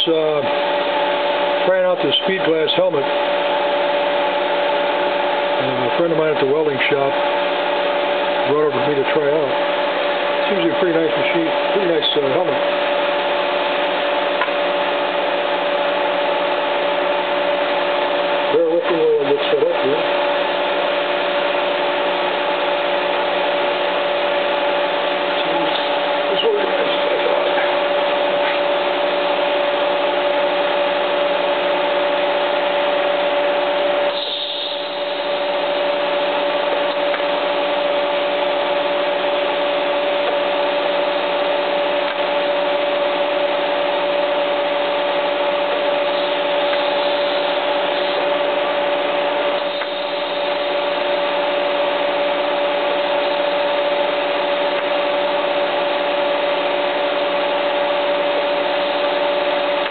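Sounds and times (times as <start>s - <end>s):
steady whine: 0.0s - 59.9s
tig welder hiss and hum: 0.0s - 59.9s.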